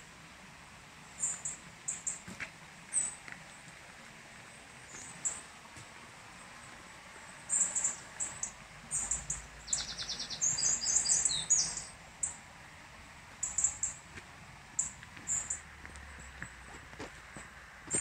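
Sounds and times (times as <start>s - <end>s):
songbirds chirping: 1.0s - 17.0s
bird trill: 7.5s - 12.4s, 13.4s - 14.0s, 14.8s - 15.6s.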